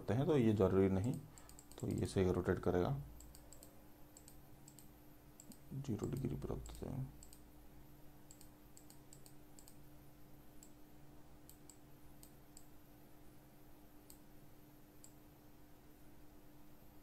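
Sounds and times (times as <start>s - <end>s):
low steady hum: 0.0s - 17.0s
computer mouse clicks: 1.1s - 2.0s, 3.2s - 7.4s, 8.3s - 9.8s.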